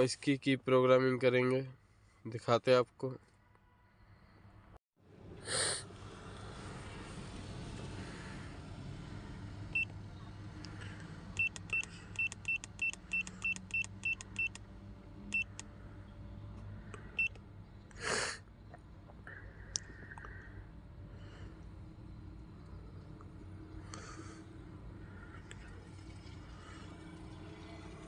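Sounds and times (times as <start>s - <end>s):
short high beeps: 11.4s - 14.6s.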